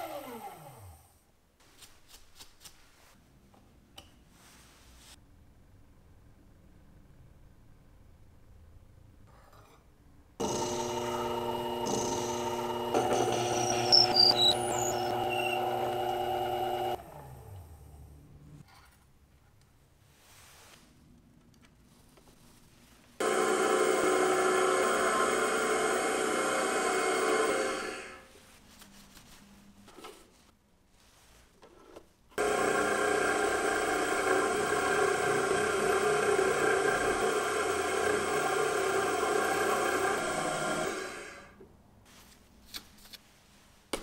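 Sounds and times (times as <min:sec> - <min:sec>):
end mill cutting brass: 0:10.4 - 0:17.0, 0:32.4 - 0:41.4
milling machine spindle whining: 0:10.4 - 0:17.1, 0:23.2 - 0:28.2, 0:32.4 - 0:41.5.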